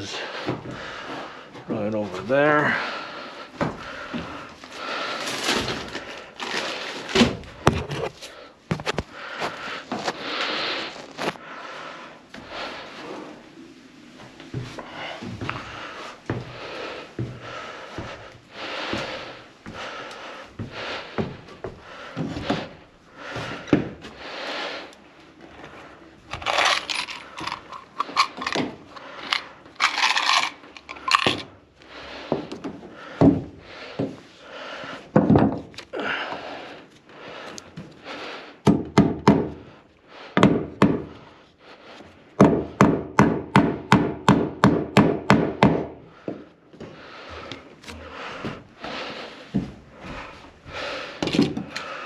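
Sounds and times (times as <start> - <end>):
tools scraping and clattering: 26.3 - 31.5.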